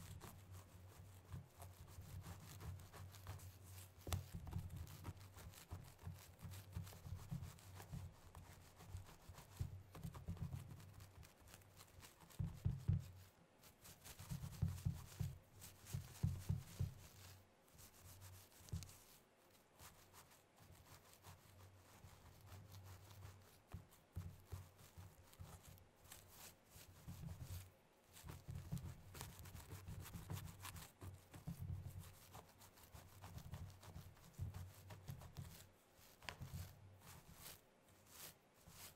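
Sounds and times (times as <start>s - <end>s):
nails scratching through hair: 0.0s - 38.9s.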